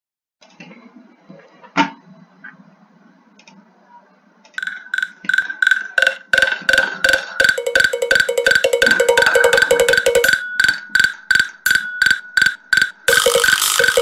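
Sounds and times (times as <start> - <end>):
percussion loop of knocks: 4.6 - 14.0.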